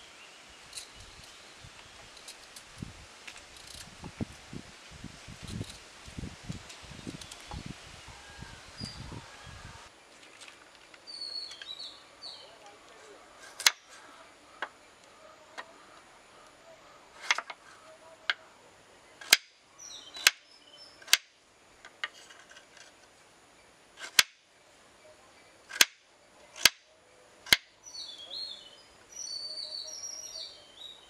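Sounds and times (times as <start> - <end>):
birds chirping: 6.7 - 22.0, 24.5 - 31.0.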